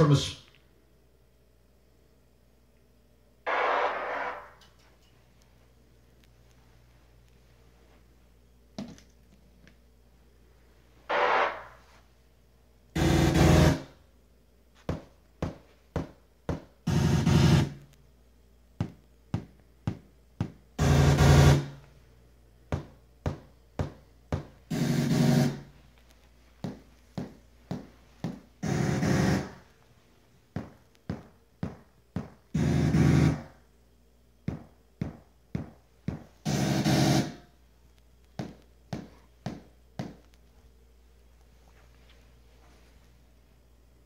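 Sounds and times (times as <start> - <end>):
buzzy test bursts: 3.4 - 4.7, 11.1 - 12.0, 12.9 - 14.0, 16.8 - 17.8, 20.8 - 21.8, 24.7 - 25.8, 28.6 - 29.7, 32.5 - 33.6, 36.4 - 37.5.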